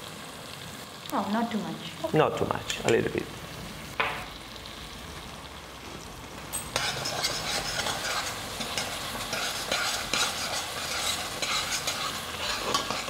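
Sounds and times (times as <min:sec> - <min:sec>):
low sizzle: 0:00.0 - 0:13.0
metal spoon scraping a pan: 0:06.6 - 0:13.0.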